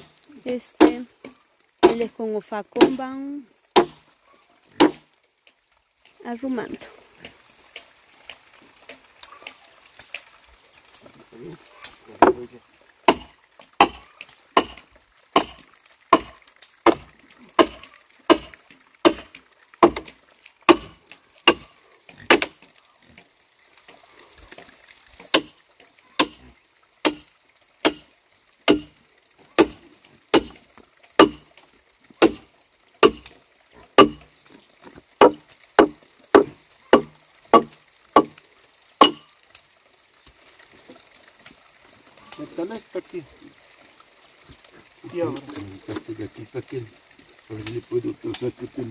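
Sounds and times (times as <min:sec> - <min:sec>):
machete chopping wood: 0:00.8 - 0:01.1, 0:01.8 - 0:02.1, 0:02.8 - 0:03.0, 0:03.8 - 0:04.0, 0:04.8 - 0:05.0, 0:12.2 - 0:12.4, 0:13.1 - 0:14.0, 0:14.6 - 0:14.8, 0:15.4 - 0:21.7, 0:22.3 - 0:22.6, 0:25.3 - 0:25.6, 0:26.2 - 0:26.4, 0:27.0 - 0:28.1, 0:28.7 - 0:28.9, 0:29.6 - 0:30.6, 0:31.2 - 0:31.4, 0:32.2 - 0:33.3, 0:34.0 - 0:34.3, 0:35.2 - 0:38.4, 0:39.0 - 0:39.2.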